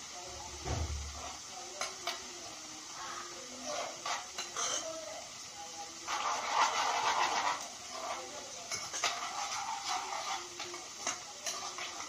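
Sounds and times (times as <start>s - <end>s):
shallots sizzling in oil: 0.0s - 12.0s
spoon scraping and clinking pan: 3.6s - 5.0s, 6.1s - 12.0s.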